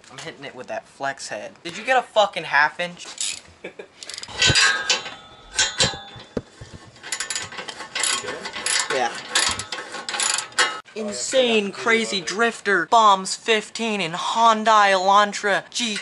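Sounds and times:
ratchet wrench clicking: 4.0 - 4.7.

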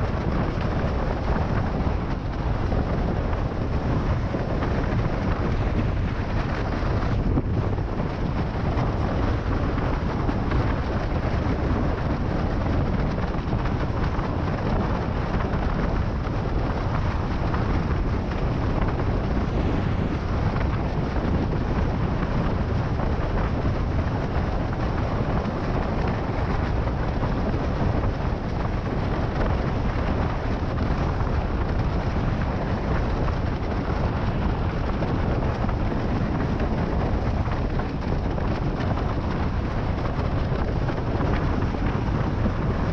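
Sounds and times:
water rushing under a board: 0.0 - 42.9
wind buffeting the microphone: 0.0 - 42.9.

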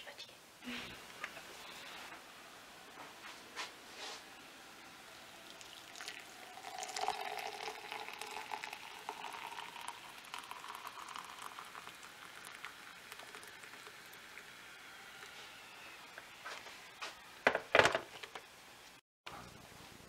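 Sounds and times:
hot water pouring into mug: 4.8 - 16.4.

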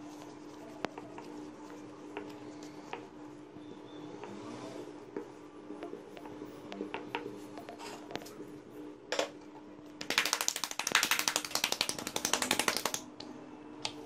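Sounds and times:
hands slapping dough: 10.0 - 13.2.

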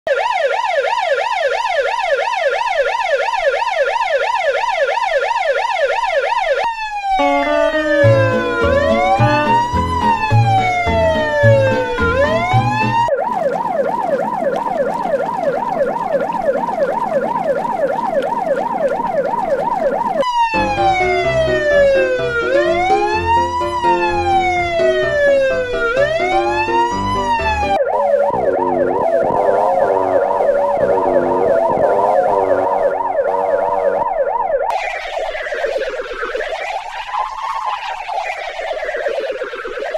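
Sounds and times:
ambulance siren: 0.1 - 39.9
low repeating beat: 7.2 - 13.1.

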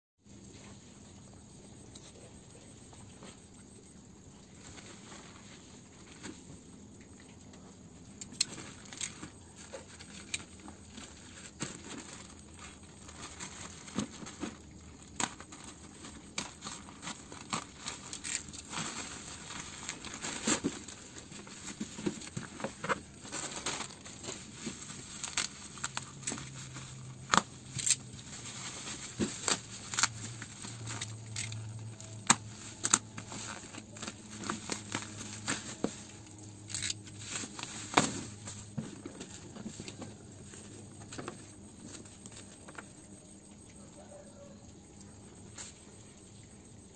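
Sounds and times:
bubble wrap crackling: 8.2 - 42.8
plastic packaging crinkling: 8.2 - 42.9.

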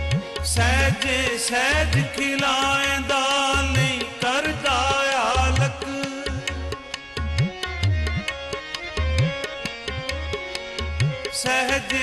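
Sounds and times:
tabla playing rhythm: 0.0 - 12.0
person singing: 0.4 - 6.9
sustained melody notes: 5.7 - 11.7.

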